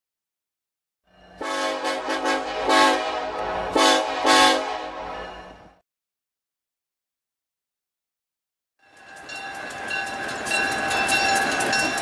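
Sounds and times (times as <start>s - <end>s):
locomotive air horn blast: 1.4s - 5.6s.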